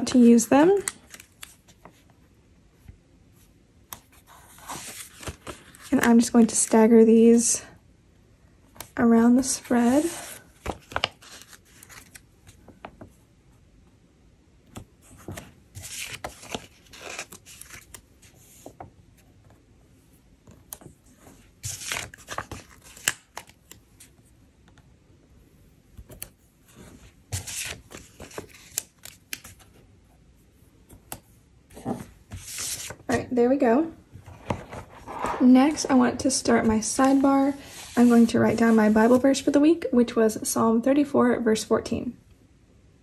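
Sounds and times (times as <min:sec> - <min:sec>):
paper handling: 0:03.9 - 0:06.7, 0:08.8 - 0:13.0, 0:15.0 - 0:19.5, 0:20.5 - 0:24.2, 0:26.0 - 0:29.8, 0:31.8 - 0:33.2, 0:34.2 - 0:39.3.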